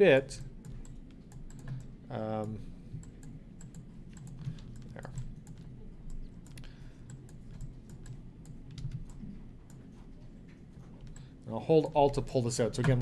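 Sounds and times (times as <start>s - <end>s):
low steady hum: 0.0s - 13.0s
computer keys clicking: 0.4s - 9.9s.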